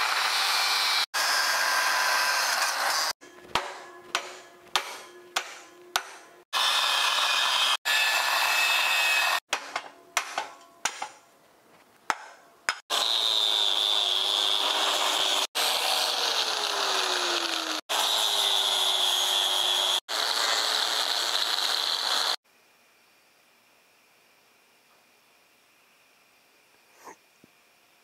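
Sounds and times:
angle grinder cutting metal: 0.0 - 3.2, 4.9 - 9.5, 12.7 - 22.4.

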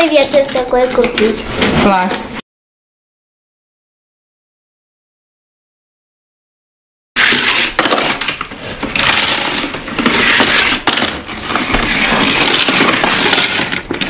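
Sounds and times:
plastic toy cars rattling and clicking: 0.0 - 1.7, 7.2 - 14.0.

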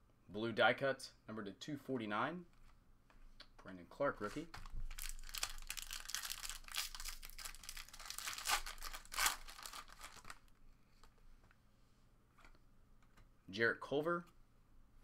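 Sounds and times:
foil wrapper tearing and crinkling: 4.9 - 10.4.

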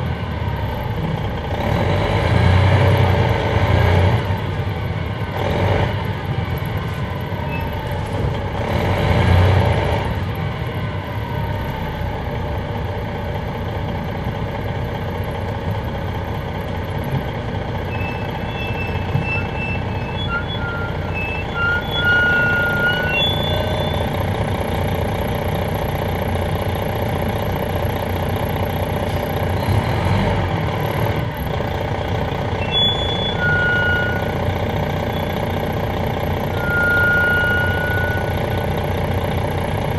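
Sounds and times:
diesel bus engine running: 0.0 - 39.9
short high beeps: 36.6 - 38.4.

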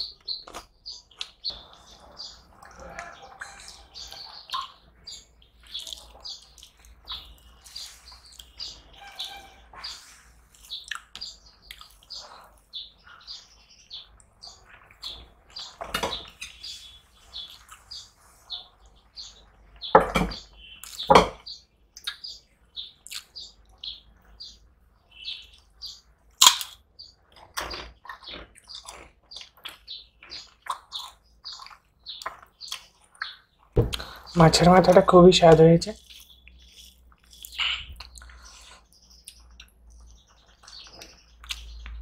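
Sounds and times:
wet chewing: 0.0 - 9.4, 10.5 - 12.7, 22.9 - 23.8, 26.3 - 42.0.

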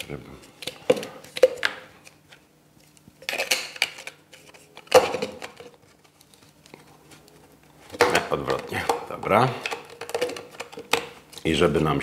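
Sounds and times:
plastic parts clattering and scraping: 7.9 - 11.1.

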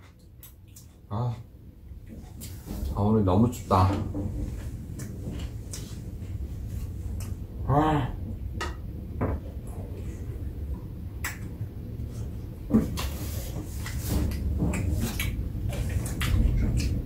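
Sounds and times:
eating clicks and knocks: 13.8 - 17.0.

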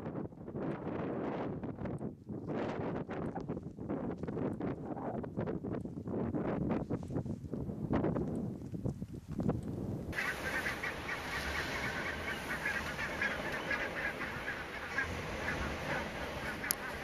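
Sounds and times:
geese honking: 10.2 - 17.0.

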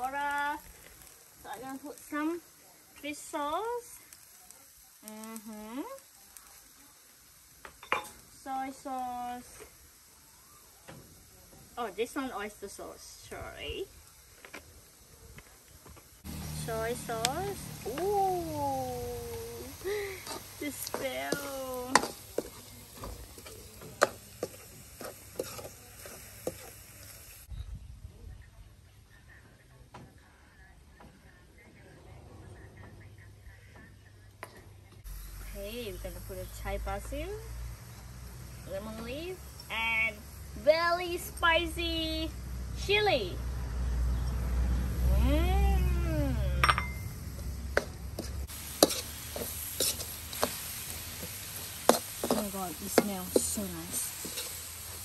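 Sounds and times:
food sizzling: 0.0 - 27.5, 35.0 - 55.0
metal ladle scraping a wok: 20.2 - 26.8, 48.2 - 55.0.

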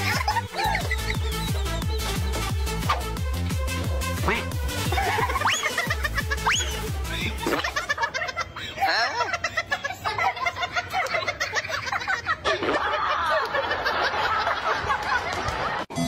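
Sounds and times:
people laughing: 0.0 - 2.5, 4.8 - 15.9.

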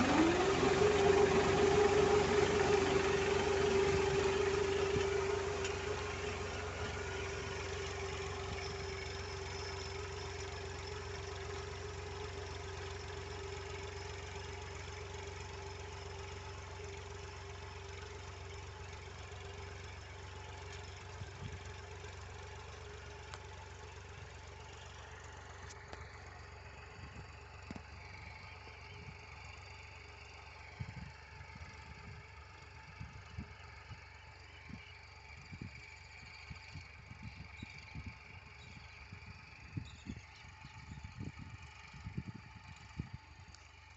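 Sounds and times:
tractor engine running: 0.0 - 43.9.

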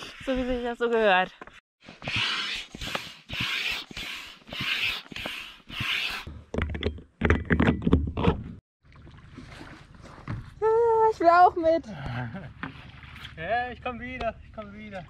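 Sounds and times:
hand pump hissing puffs: 1.9 - 6.3.

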